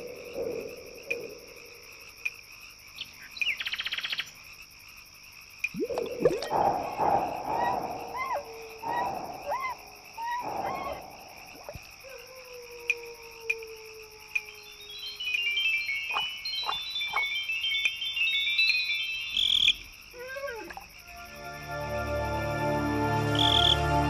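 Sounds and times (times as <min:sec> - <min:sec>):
short croaking calls with chirps: 0:05.9 - 0:12.2.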